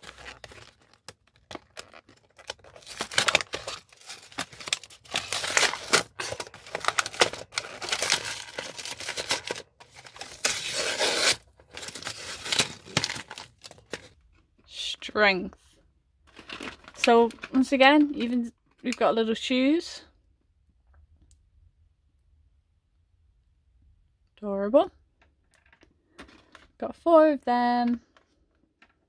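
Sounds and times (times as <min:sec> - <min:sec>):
plastic packaging crinkling: 0:00.0 - 0:14.2, 0:16.3 - 0:17.7.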